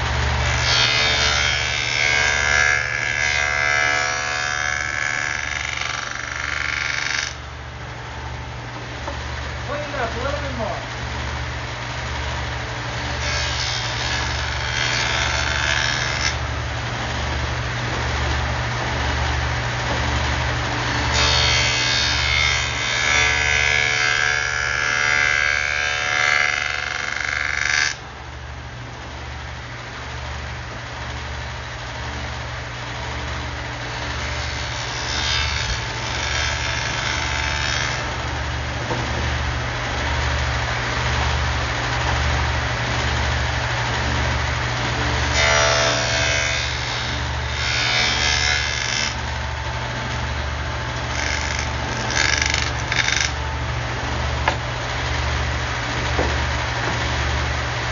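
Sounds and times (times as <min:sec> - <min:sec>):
table saw cutting wood: 0:00.0 - 0:07.4, 0:13.0 - 0:28.0, 0:33.8 - 0:41.4, 0:44.0 - 0:57.9
low pulsing hum: 0:27.9 - 0:57.9.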